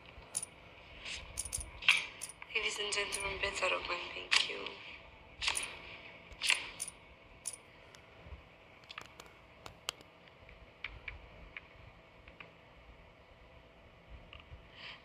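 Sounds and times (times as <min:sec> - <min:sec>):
faint game control clicks: 0:01.3 - 0:03.4, 0:08.8 - 0:12.6.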